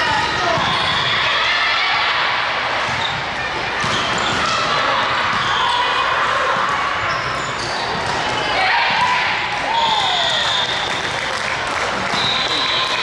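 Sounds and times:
sneaker squeaks on court floor: 2.9 - 4.7, 6.6 - 9.0.

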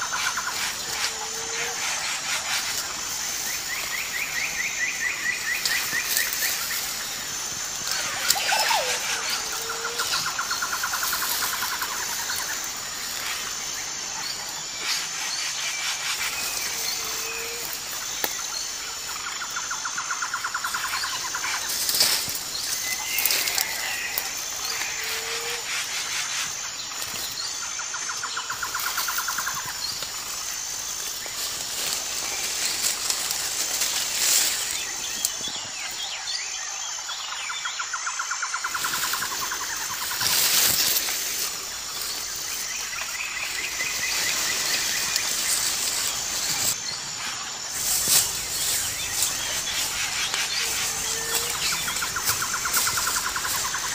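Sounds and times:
pulsed trilling bird call: 7.8 - 12.8.

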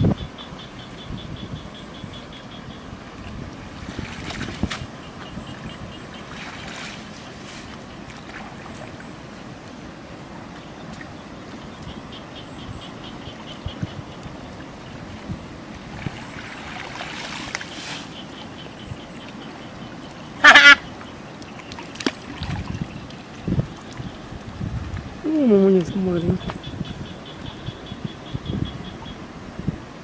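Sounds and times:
muddy water sloshing: 3.1 - 9.8, 15.0 - 27.7.

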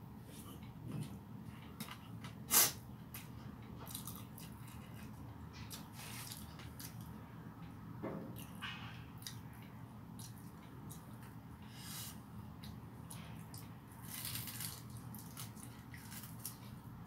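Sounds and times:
person chewing food: 3.7 - 7.1, 9.2 - 12.0, 12.6 - 16.8.

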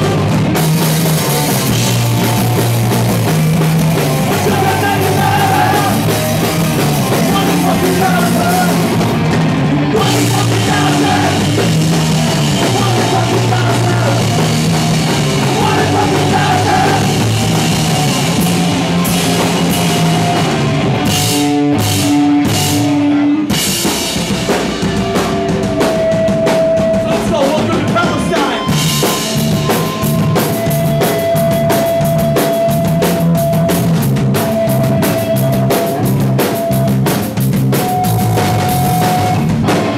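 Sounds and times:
punk rock band playing: 0.0 - 39.9.

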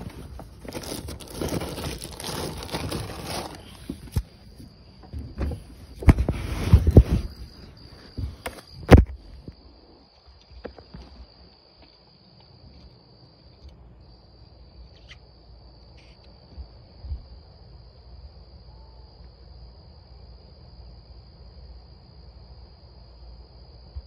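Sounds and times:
high-pitched insect trill: 6.9 - 19.3.

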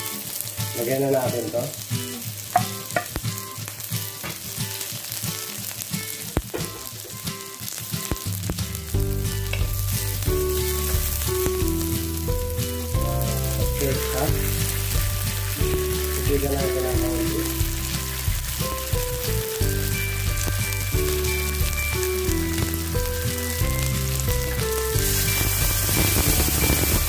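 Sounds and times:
vegetables sizzling in hot oil: 0.0 - 27.0
background music with bass: 8.3 - 27.0.

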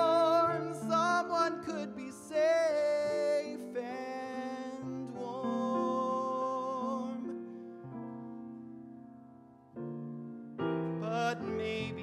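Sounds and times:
man singing with vibrato: 0.0 - 7.5, 11.0 - 12.0
piano chords: 0.0 - 12.0.

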